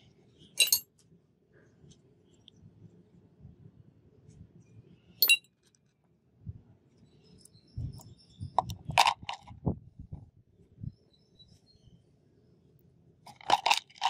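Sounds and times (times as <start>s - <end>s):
metal parts clicking on concrete: 0.6s - 1.0s, 5.2s - 5.9s, 13.3s - 14.0s.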